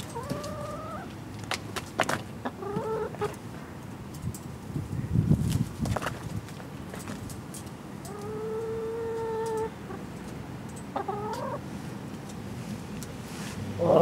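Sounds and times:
chicken calling: 0:00.2 - 0:01.1, 0:08.1 - 0:10.0, 0:10.9 - 0:11.6.

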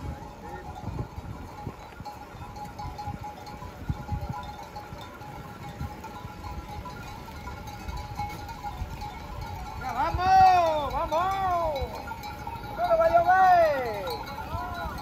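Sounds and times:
animal neck bells ringing: 0:00.0 - 0:15.0
hooves shuffling on gravel: 0:00.0 - 0:15.0.

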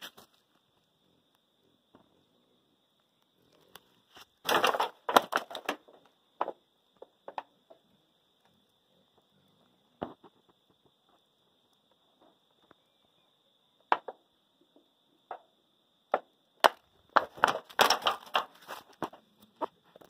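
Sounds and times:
twigs clicking and snapping: 0:03.2 - 0:06.0, 0:16.6 - 0:19.7
faint steady high tone: 0:11.4 - 0:13.9.

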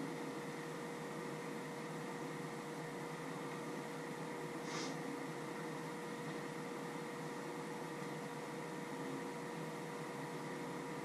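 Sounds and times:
constant hum: 0:00.0 - 0:11.0
steady hiss: 0:04.5 - 0:05.2.

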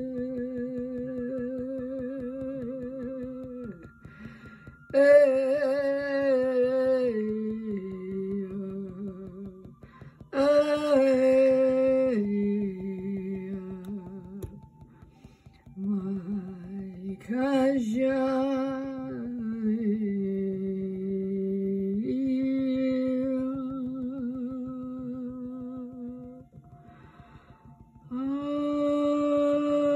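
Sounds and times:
woman chanting wordless tones: 0:15.7 - 0:26.5.

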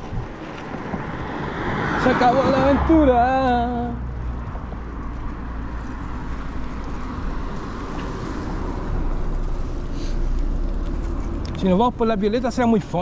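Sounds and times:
wind noise on microphone: 0:00.0 - 0:02.8
road noise: 0:00.0 - 0:13.0.

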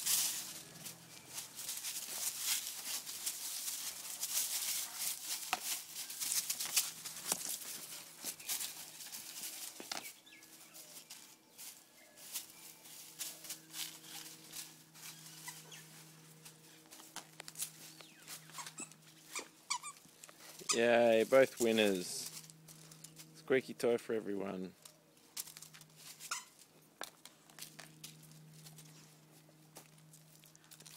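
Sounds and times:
dogs scuffling over a toy: 0:00.0 - 0:19.4.

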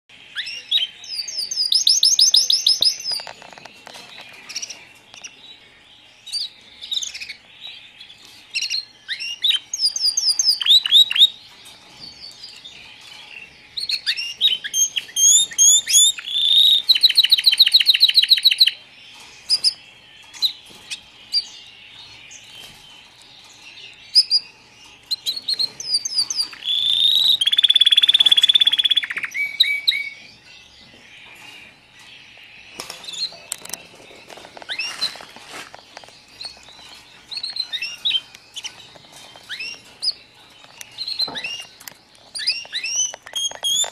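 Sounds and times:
canary chirps and whistles: 0:00.3 - 0:05.3, 0:08.5 - 0:11.4, 0:13.8 - 0:18.8, 0:24.1 - 0:30.3, 0:34.7 - 0:35.2, 0:36.3 - 0:43.9
canary trilling: 0:00.3 - 0:43.9.

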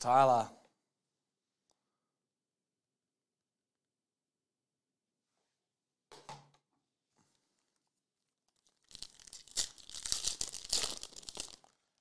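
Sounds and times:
foil pack tearing open: 0:08.6 - 0:11.8
wrapper crinkling: 0:08.6 - 0:12.0.

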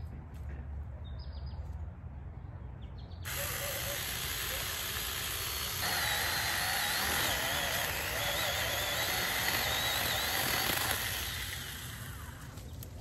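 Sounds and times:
mini chainsaw cutting branch: 0:03.3 - 0:12.8.

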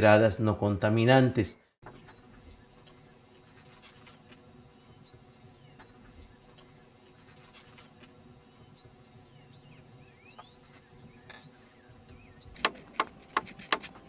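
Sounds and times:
hand tool clicking and scraping: 0:12.5 - 0:14.0.

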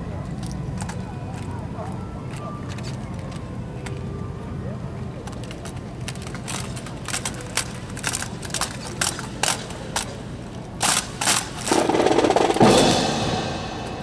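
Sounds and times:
dense rush of sound: 0:11.8 - 0:14.0.

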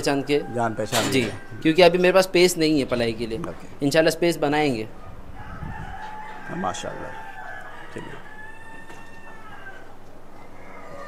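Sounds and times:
rooster crowing: 0:00.0 - 0:02.2, 0:05.0 - 0:11.0.

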